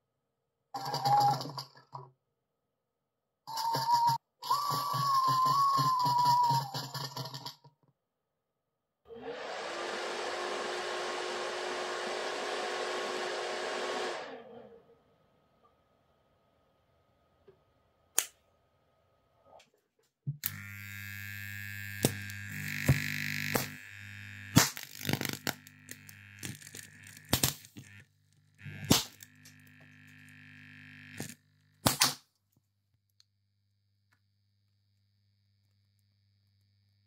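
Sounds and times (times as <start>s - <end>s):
electrical hum and sizzle: 20.4s - 32.0s
components popping and cracking: 21.9s - 28.0s, 28.6s - 32.3s.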